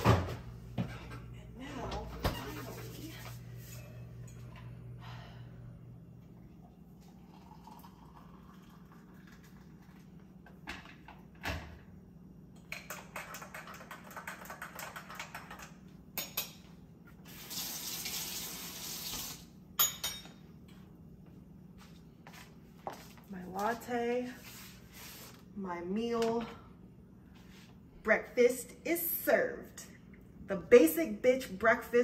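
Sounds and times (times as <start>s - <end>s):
liquid pouring into a mug: 6.4s - 10.4s.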